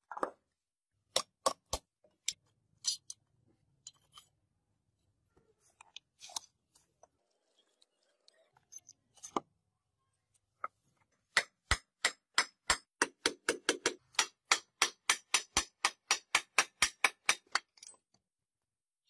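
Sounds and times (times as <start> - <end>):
hammer striking: 11.3 - 17.7.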